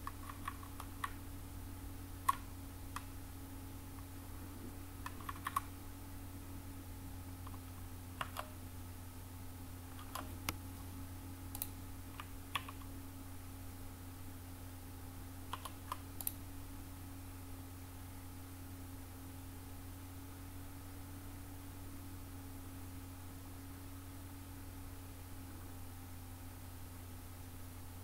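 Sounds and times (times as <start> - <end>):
keyboard keys clicking: 0.0 - 1.2, 5.0 - 5.7, 8.2 - 8.6, 9.9 - 10.6, 11.5 - 12.9, 15.5 - 16.4
low hum: 0.0 - 28.0.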